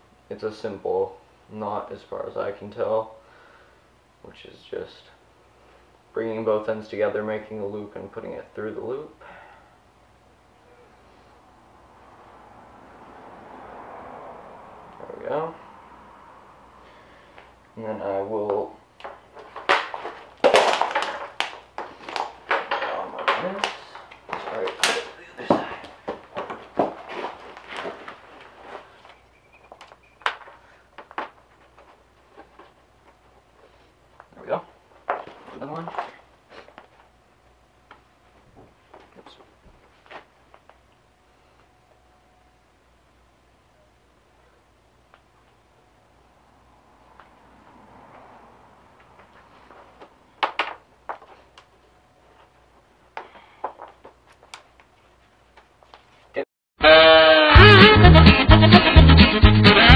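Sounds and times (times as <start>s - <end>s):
hands rustling and scraping cord: 19.0s - 37.2s, 49.0s - 56.4s.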